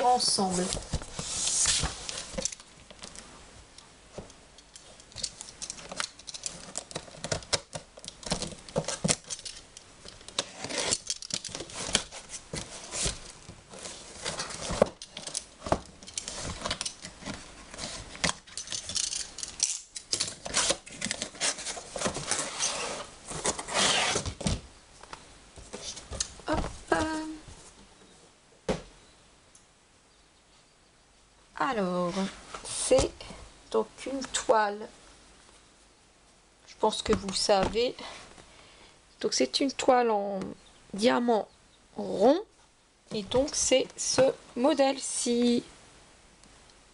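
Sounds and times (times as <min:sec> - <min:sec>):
cardboard flaps rustling: 0:00.0 - 0:03.2, 0:10.2 - 0:18.6, 0:20.3 - 0:27.9
utility knife slitting cardboard: 0:20.4 - 0:24.4.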